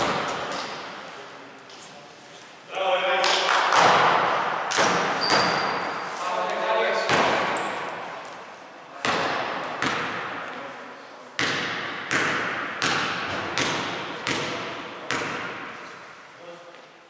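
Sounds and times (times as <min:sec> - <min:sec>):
basketball bouncing on hardwood floor: 0:11.4 - 0:15.7.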